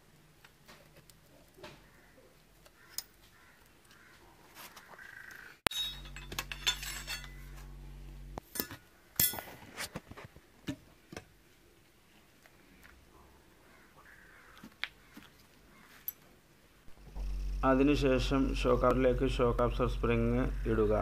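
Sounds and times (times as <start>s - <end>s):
metal tools clinking: 5.7s - 7.6s, 8.5s - 9.5s
low steady hum: 5.7s - 9.8s, 16.7s - 21.0s.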